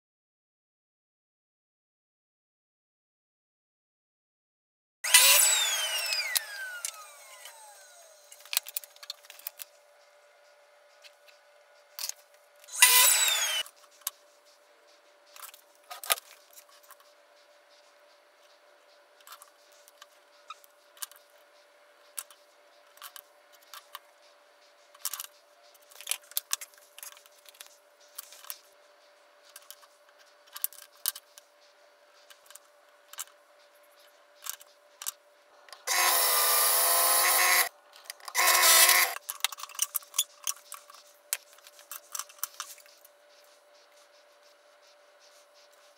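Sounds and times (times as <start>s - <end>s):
power drill running: 5.0s - 8.4s, 12.7s - 13.7s, 35.8s - 37.7s, 38.4s - 39.2s.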